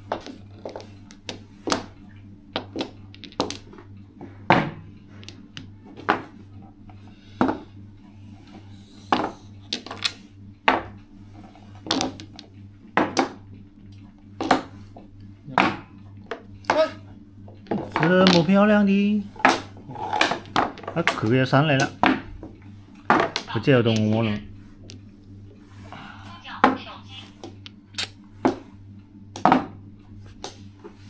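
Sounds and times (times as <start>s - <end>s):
steady low hum: 0.0s - 31.0s
mahjong tiles clacking: 2.6s - 3.7s, 17.7s - 22.1s.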